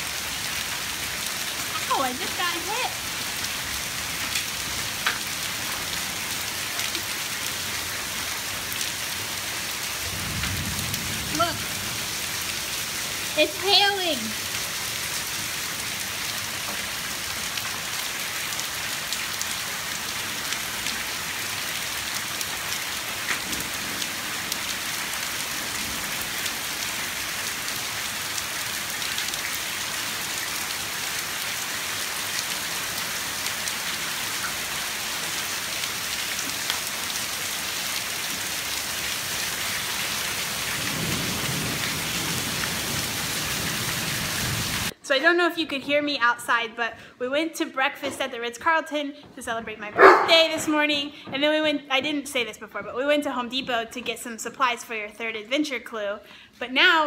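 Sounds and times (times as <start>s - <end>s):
hailstones ticking on pavers: 0.2s - 44.9s
low thunder rumble: 10.0s - 12.1s, 40.8s - 43.8s
heavy rain hiss: 19.6s - 44.9s.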